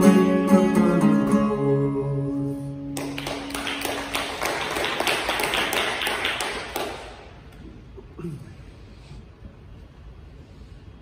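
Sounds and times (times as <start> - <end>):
acoustic guitar notes ringing: 0.0 - 3.0
applause: 2.9 - 7.4.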